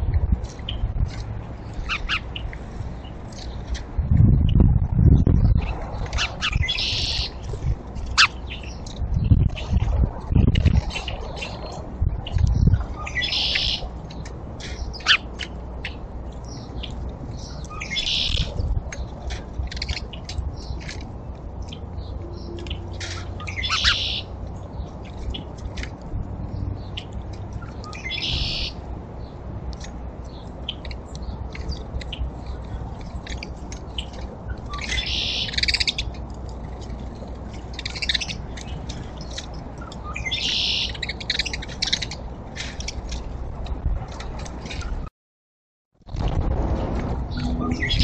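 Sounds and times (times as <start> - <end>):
songbirds chirping: 0.4 - 4.0, 5.2 - 9.7, 10.8 - 43.4, 47.3 - 48.0
low background rumble: 46.1 - 48.0.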